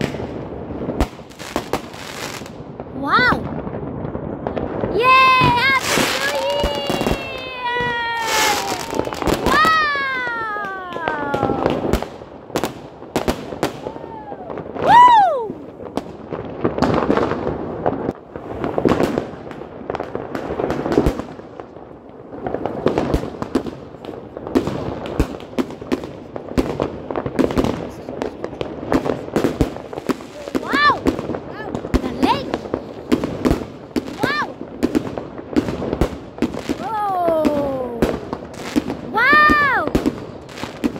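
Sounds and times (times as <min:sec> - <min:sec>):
fireworks bangs and crackles: 0:00.0 - 0:40.9
whistling firework: 0:04.5 - 0:16.0.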